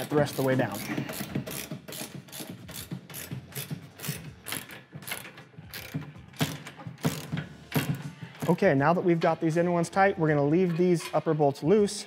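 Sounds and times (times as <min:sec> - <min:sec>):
ratchet wrench clicking: 0:00.0 - 0:08.0.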